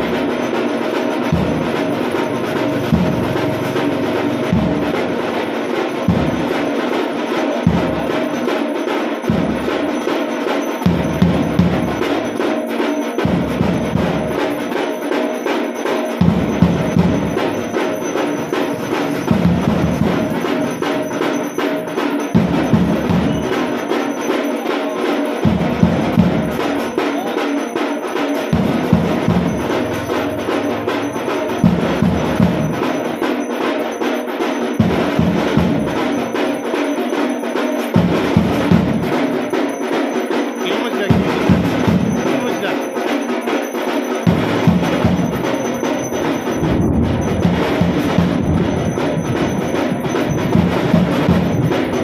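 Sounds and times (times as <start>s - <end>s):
deeper drum in bursts: 0.0s - 52.0s
drums beaten in fast rhythm: 0.0s - 52.0s.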